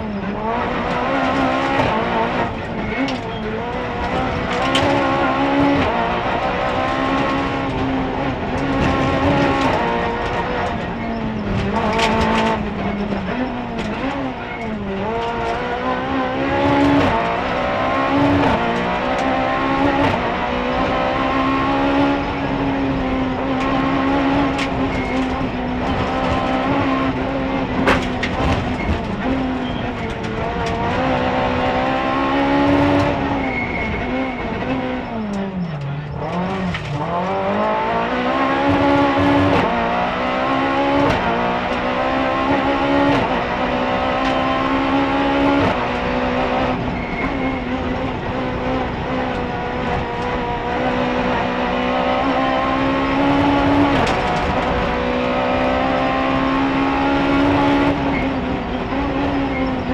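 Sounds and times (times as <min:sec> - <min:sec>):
rally car engine revving: 0:00.0 - 0:59.9
sharp clicks and knocks: 0:02.7 - 0:06.0, 0:06.6 - 0:15.7, 0:27.8 - 0:33.2, 0:52.2 - 0:54.9.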